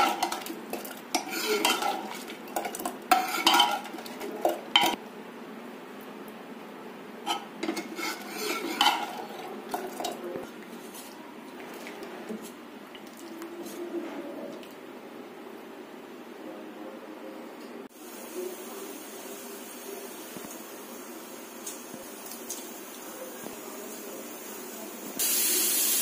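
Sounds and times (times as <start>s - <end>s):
spatula scraping pot: 0.0s - 5.0s, 7.3s - 12.6s.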